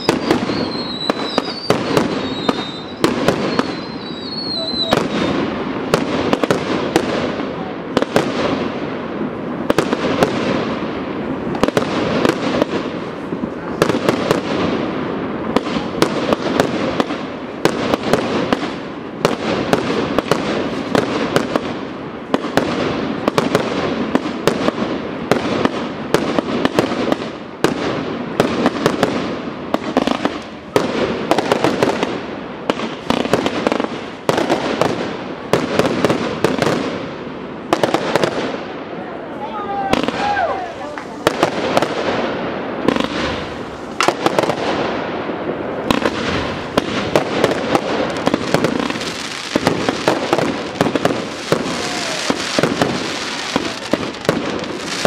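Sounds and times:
fireworks bursting: 0.0 - 55.0.

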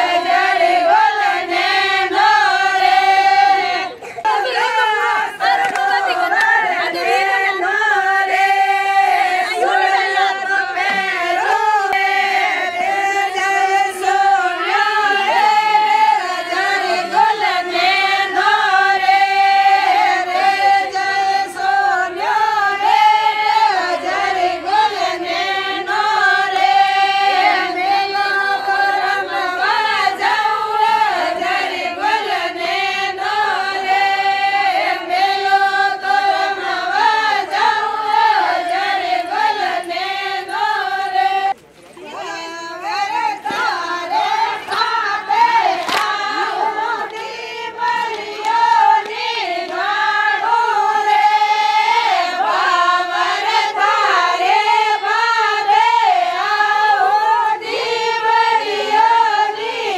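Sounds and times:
women singing folk song: 0.0 - 59.9.

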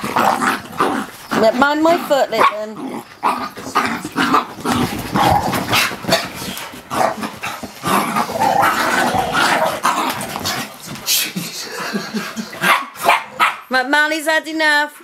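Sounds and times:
dogs barking: 0.0 - 6.4, 12.6 - 13.7
dogs growling: 0.0 - 13.4.

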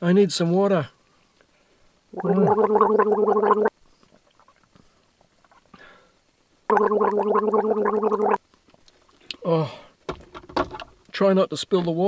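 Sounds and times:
man gargling water: 2.2 - 3.7, 6.7 - 8.4.

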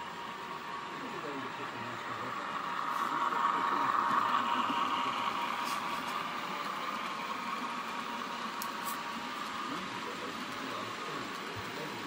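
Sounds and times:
tinny diesel engine hum: 0.0 - 12.0.

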